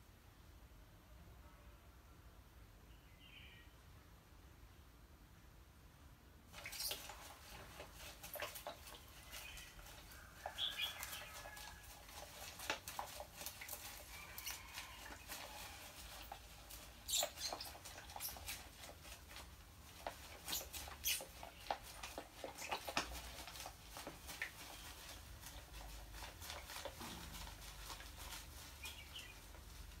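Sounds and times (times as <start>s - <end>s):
rat splashing in water: 6.5s - 27.2s.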